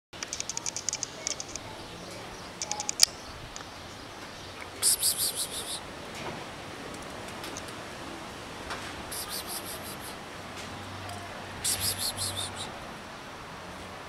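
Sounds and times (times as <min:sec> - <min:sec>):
sharp click: 0:00.2 - 0:01.6
small birds chirping: 0:00.2 - 0:05.9, 0:09.1 - 0:10.2, 0:11.6 - 0:12.7.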